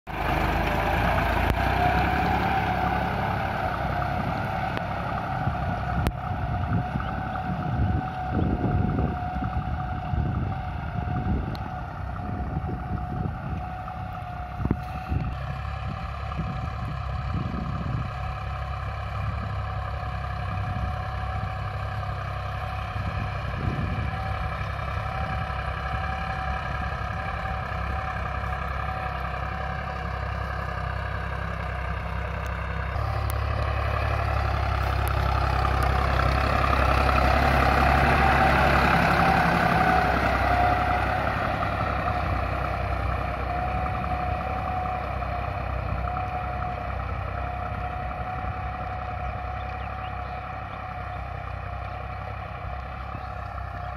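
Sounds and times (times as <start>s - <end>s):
tractor diesel engine under load: 0.0s - 53.9s
wind on microphone: 5.4s - 13.8s, 14.5s - 18.2s, 23.0s - 24.5s.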